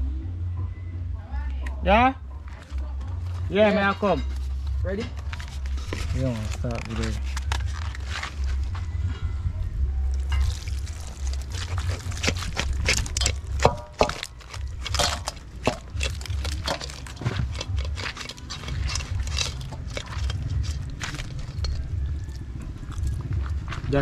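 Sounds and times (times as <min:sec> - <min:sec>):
steady low rumble: 0:00.0 - 0:24.0
crab shells clattering on metal: 0:10.2 - 0:23.9.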